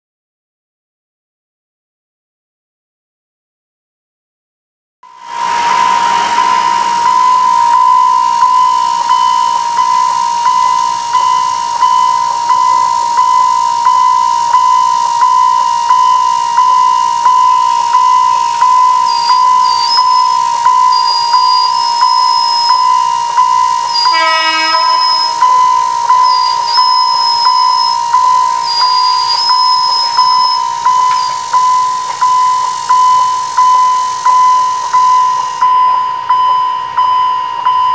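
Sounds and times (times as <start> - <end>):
level crossing warning bell: 5.0 - 37.9
brief horn note: 24.0 - 25.4.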